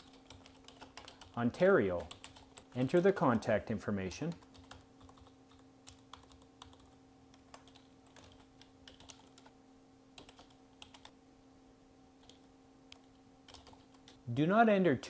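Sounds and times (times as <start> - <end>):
keystrokes on computer keyboard: 0.0 - 3.1, 4.3 - 9.5, 10.2 - 11.1, 12.2 - 14.2
low steady hum: 0.0 - 15.0.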